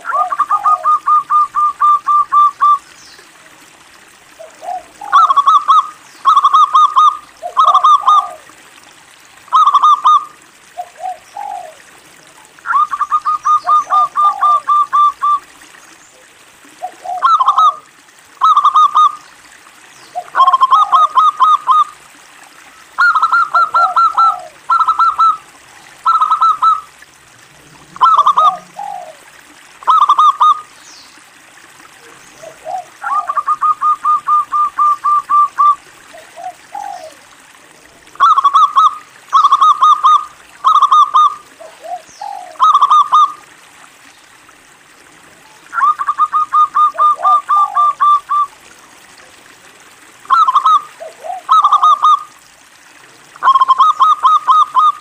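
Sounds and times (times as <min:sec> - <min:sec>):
dove cooing: 0:00.0 - 0:02.8, 0:04.4 - 0:08.5, 0:09.5 - 0:11.9, 0:12.7 - 0:15.5, 0:16.8 - 0:19.2, 0:20.1 - 0:22.0, 0:23.0 - 0:26.9, 0:27.8 - 0:30.6, 0:32.0 - 0:37.3, 0:38.1 - 0:43.4, 0:45.7 - 0:48.5, 0:50.3 - 0:52.4.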